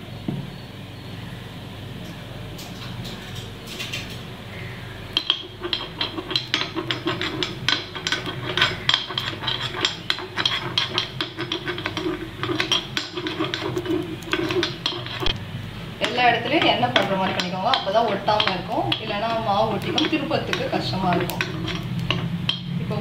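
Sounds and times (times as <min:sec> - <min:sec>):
metal spoon scraping pan: 0:05.1 - 0:15.4, 0:16.0 - 0:23.0.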